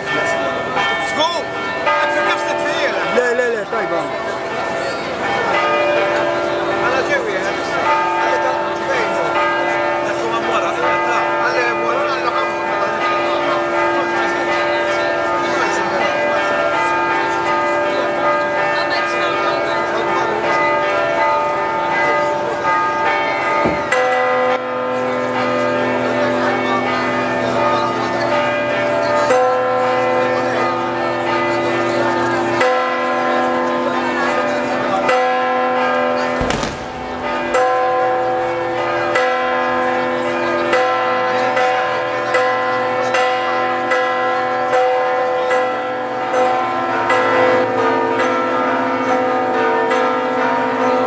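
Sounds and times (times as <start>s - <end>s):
church bells ringing: 0.0s - 51.0s.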